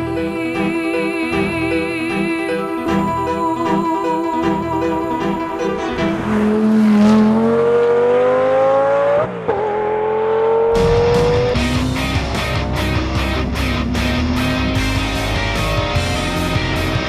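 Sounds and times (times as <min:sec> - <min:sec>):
electric guitar music: 0:00.0 - 0:09.2, 0:10.3 - 0:17.0
car engine accelerating: 0:04.8 - 0:17.0.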